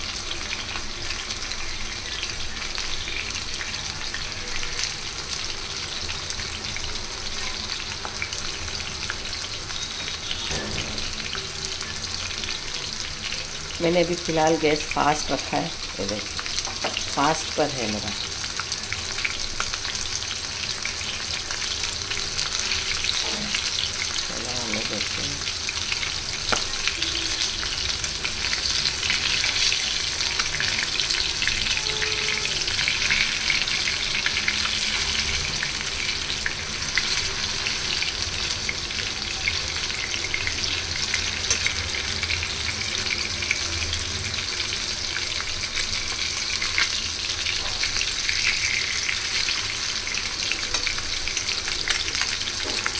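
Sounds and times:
fish sizzling in hot oil: 0.0 - 52.9.

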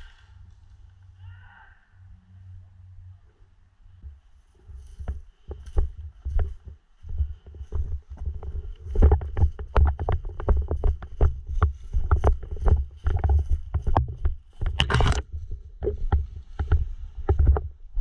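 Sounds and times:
handling thuds and clicks: 8.9 - 17.7.

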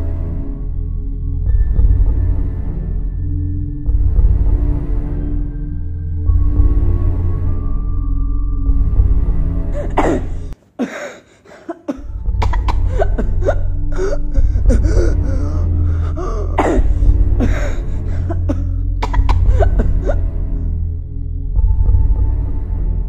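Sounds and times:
music with low bass: 0.0 - 10.6, 12.0 - 23.0
coughs and gasps: 9.8 - 20.3.

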